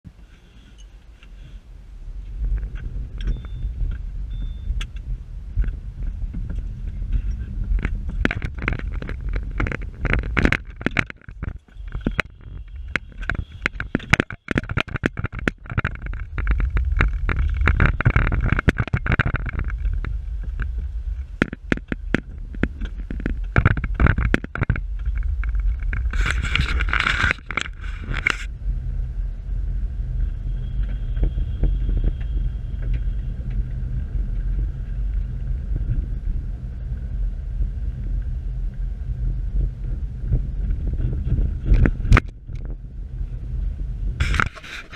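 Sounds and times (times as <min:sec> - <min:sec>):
car cabin low rumble: 0:00.0 - 0:44.9
clicks and knocks: 0:07.8 - 0:20.1, 0:21.4 - 0:28.5.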